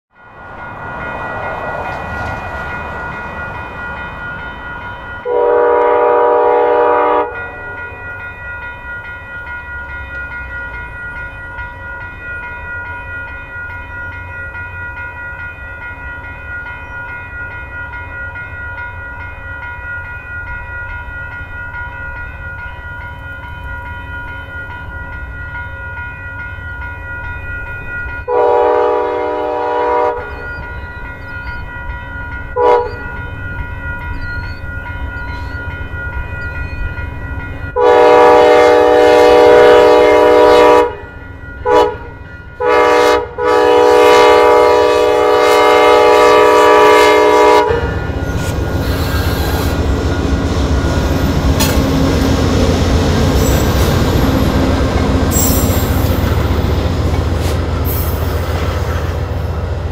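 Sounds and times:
train horn blasts: 5.2s - 7.8s, 28.3s - 30.6s, 32.6s - 33.2s, 37.8s - 49.8s.

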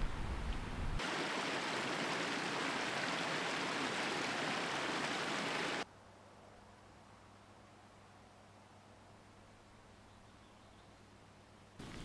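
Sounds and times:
stream water rushing: 1.0s - 5.8s.

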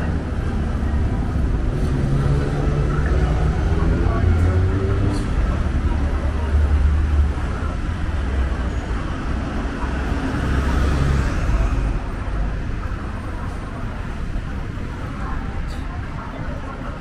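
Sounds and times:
vehicles passing: 0.0s - 17.0s
vehicle passing loudly: 9.0s - 12.1s.

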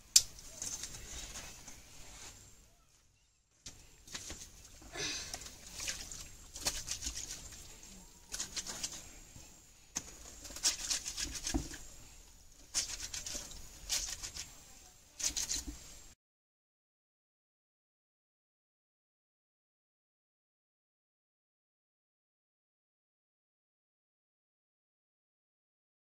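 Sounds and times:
clothes hand-washed in water: 3.7s - 16.2s.

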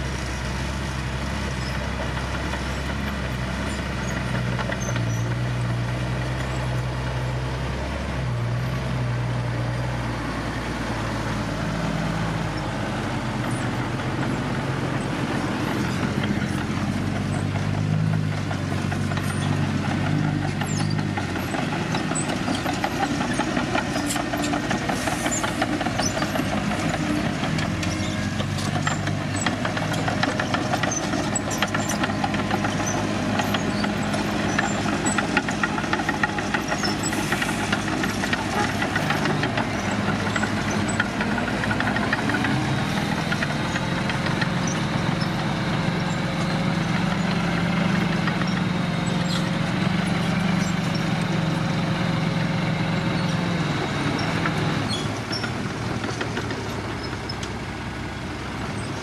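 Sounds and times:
diesel truck engine running: 0.0s - 59.0s.

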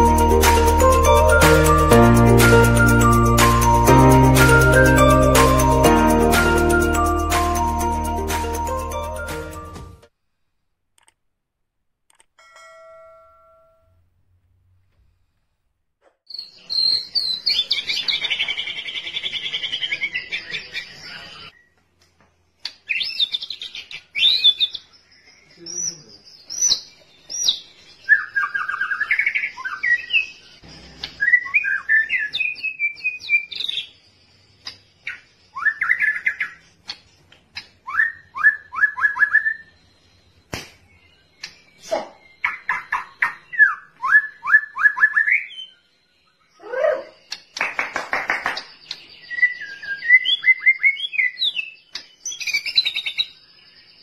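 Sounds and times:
songbird singing whistled phrases: 16.3s - 21.8s, 22.8s - 30.4s, 31.1s - 34.0s, 34.6s - 36.6s, 37.6s - 39.9s, 41.3s - 47.6s, 48.5s - 54.0s.

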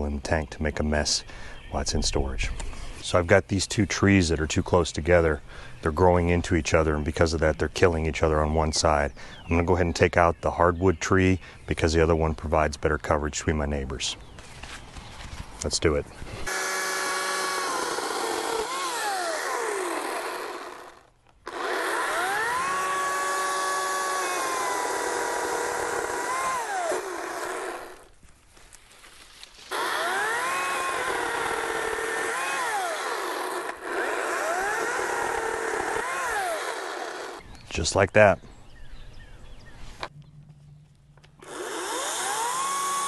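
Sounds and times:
electric chainsaw cutting wood: 16.4s - 28.1s, 29.6s - 37.4s, 41.4s - 43.0s.

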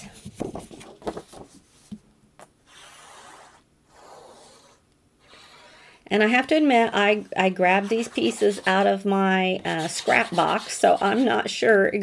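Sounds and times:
hand rubbing paper: 7.4s - 11.6s.

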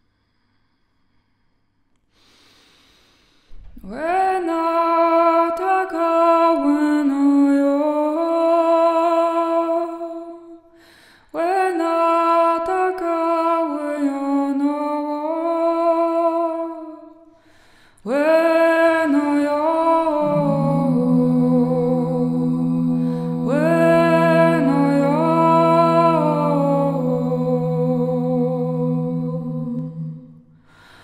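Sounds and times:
woman singing wordless tones: 3.8s - 10.4s, 11.4s - 17.0s, 18.0s - 30.4s.

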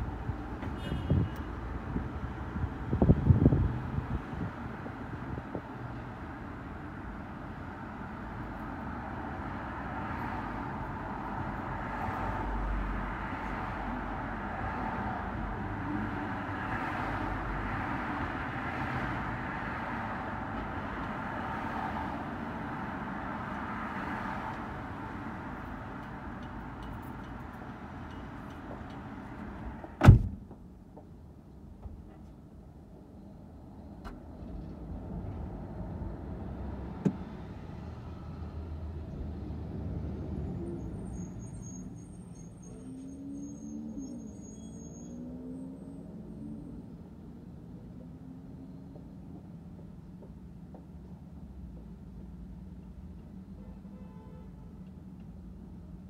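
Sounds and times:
street traffic: 0.0s - 56.0s
loud thump: 30.0s - 30.6s.

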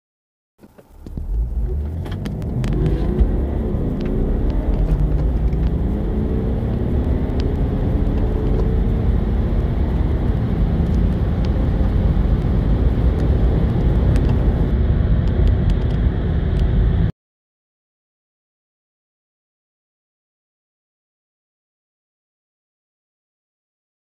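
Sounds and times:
diesel car accelerating: 0.6s - 17.1s
road and wind noise: 0.6s - 17.1s.

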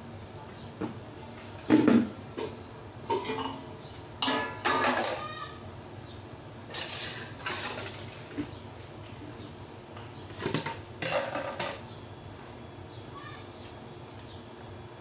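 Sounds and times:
plastic basins clattering on tiles: 1.6s - 5.3s, 6.7s - 8.6s, 10.3s - 11.8s.

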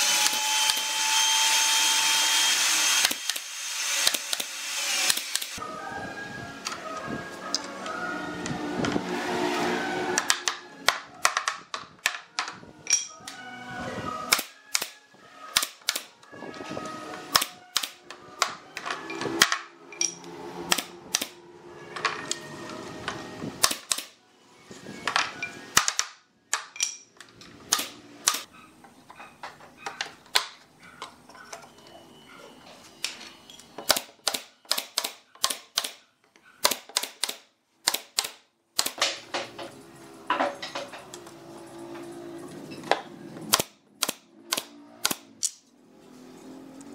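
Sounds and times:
nail gun firing: 2.7s - 5.6s, 14.3s - 16.1s, 23.6s - 24.2s, 25.8s - 26.7s, 27.7s - 28.5s, 33.9s - 36.0s, 36.6s - 39.2s, 43.5s - 45.6s.

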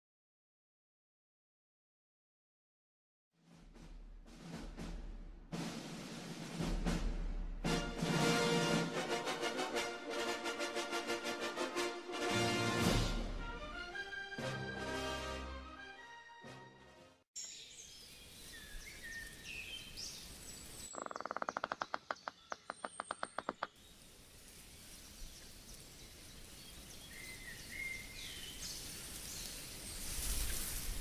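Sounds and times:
birds chirping: 17.4s - 30.2s
hiss: 24.0s - 31.0s.

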